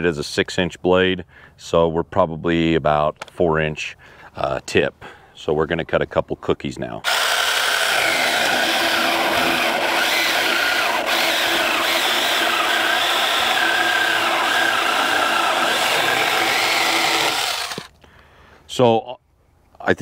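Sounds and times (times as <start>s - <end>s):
electric chainsaw cutting log: 7.0s - 17.9s.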